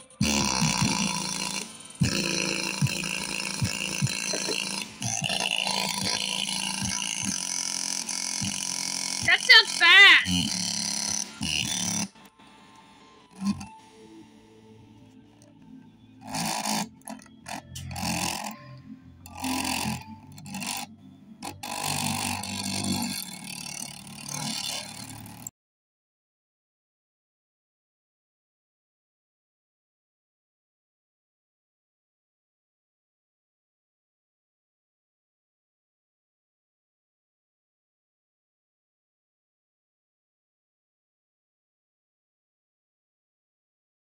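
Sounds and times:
music with rattling speaker buzz: 0.0 - 25.5.

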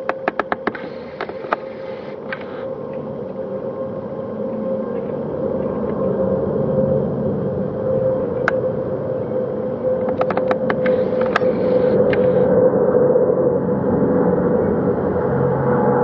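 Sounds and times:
sharp clicks: 0.0 - 2.6, 10.0 - 12.3
jet engine roar: 0.0 - 16.0.

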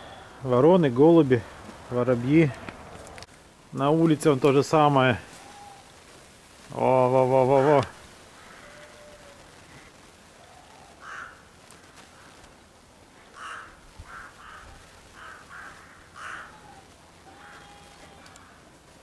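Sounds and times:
crows cawing: 7.5 - 12.6, 13.2 - 18.8.

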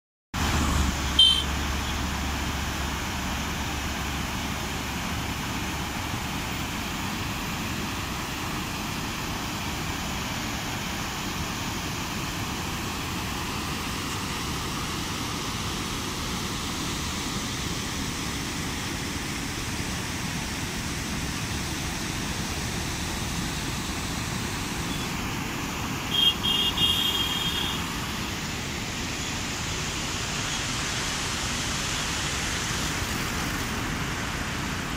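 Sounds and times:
water roaring down spillway: 0.4 - 34.9
short high-pitched beeps: 1.2 - 1.5.

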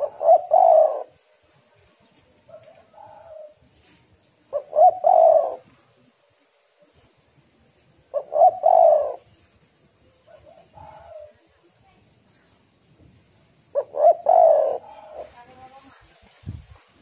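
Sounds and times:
dove cooing: 0.0 - 1.2, 2.5 - 3.7, 4.4 - 6.1, 8.0 - 11.5, 13.7 - 15.4.

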